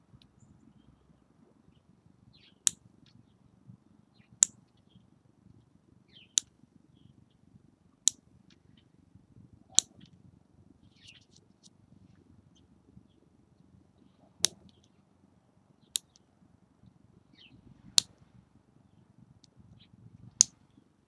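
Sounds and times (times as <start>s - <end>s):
soft ticks and scrapes: 10.9s - 12.7s.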